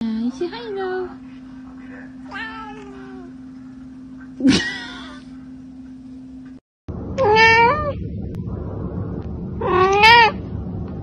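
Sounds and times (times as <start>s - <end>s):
cat meowing: 2.3s - 3.3s, 7.2s - 8.0s, 9.6s - 10.4s.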